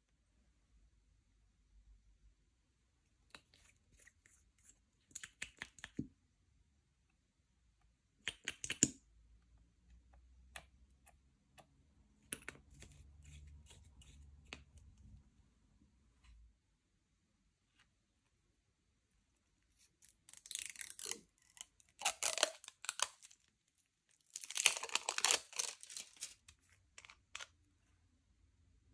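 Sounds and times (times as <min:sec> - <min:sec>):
slime clicking and crackling: 0:20.3 - 0:23.4, 0:24.1 - 0:26.4.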